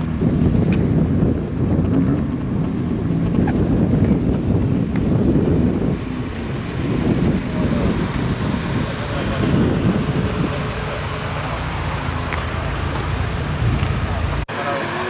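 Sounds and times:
rally car engines rumbling: 0.0s - 15.0s.

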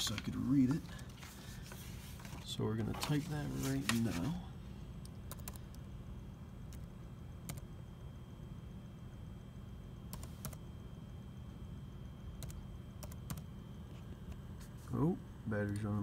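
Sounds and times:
low steady hum: 0.0s - 16.0s
laptop keystrokes: 5.0s - 5.8s, 10.1s - 10.6s, 12.4s - 13.5s.

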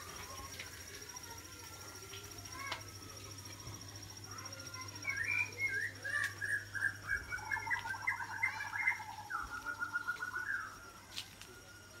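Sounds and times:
birds chirping: 0.0s - 11.0s
rapid bird trill: 2.4s - 10.9s.

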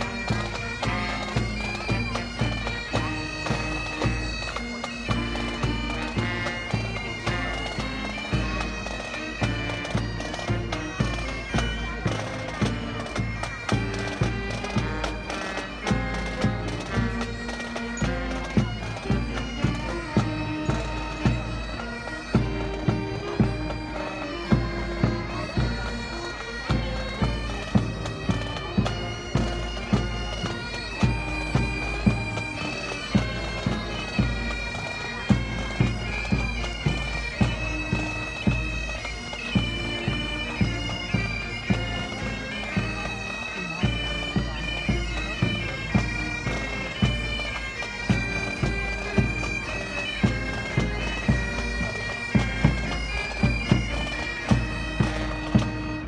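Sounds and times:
bagpipes playing melody: 0.0s - 56.0s.

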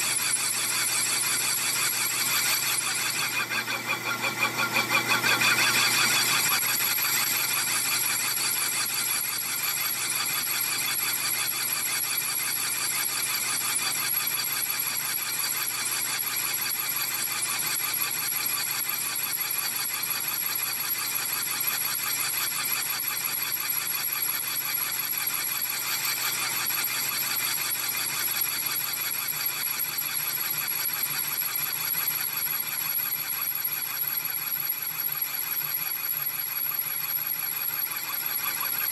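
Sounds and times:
lathe cutting tool ringing: 2.4s - 6.5s.

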